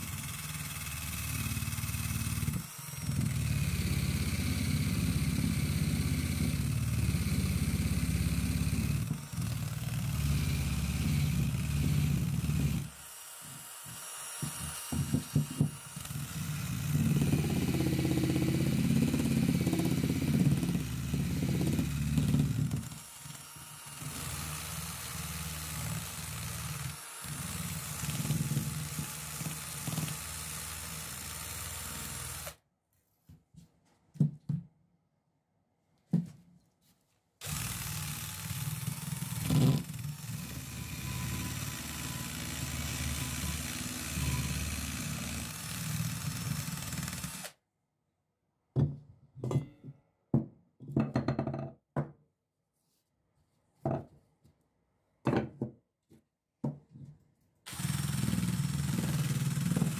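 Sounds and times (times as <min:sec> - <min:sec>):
drill wire brush scrubbing rust: 0:00.0 - 0:32.6, 0:37.4 - 0:47.5, 0:57.7 - 0:59.9.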